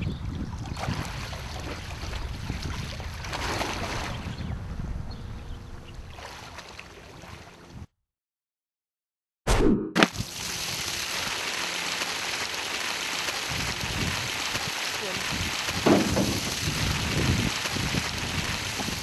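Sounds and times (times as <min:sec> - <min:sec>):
wind on microphone: 0:00.0 - 0:06.2, 0:13.5 - 0:19.0
water splashing: 0:06.1 - 0:07.6, 0:10.0 - 0:19.0.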